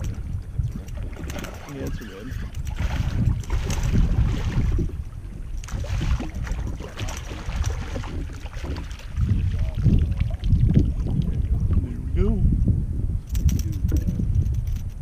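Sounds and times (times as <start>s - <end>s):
wind buffeting microphone: 0.0s - 15.0s
fish splashing in water: 2.5s - 11.1s.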